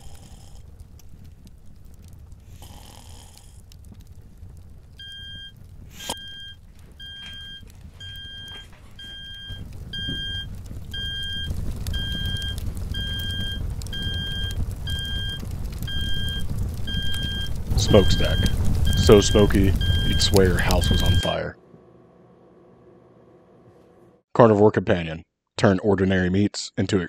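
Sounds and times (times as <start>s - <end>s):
low rumble: 0.0s - 24.2s
smoke alarm beeping: 5.0s - 21.4s.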